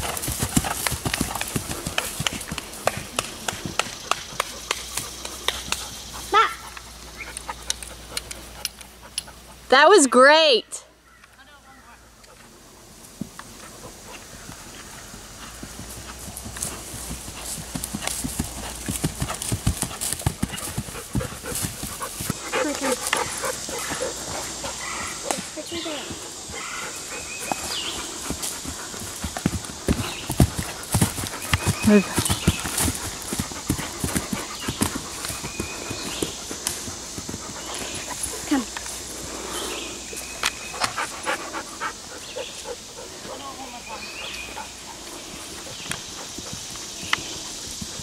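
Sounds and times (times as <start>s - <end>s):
horse hoofbeats on grass: 0.0s - 10.3s, 13.1s - 48.0s.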